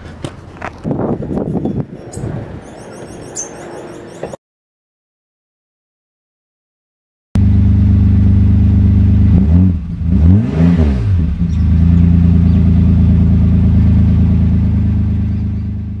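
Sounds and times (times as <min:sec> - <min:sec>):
car engine idling and revving: 0:07.4 - 0:16.0.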